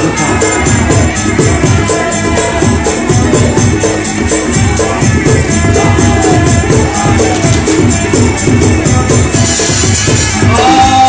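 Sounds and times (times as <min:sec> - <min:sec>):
fast music with quick beat: 0:00.0 - 0:11.0
jingling cymbal-like percussion: 0:00.0 - 0:11.0.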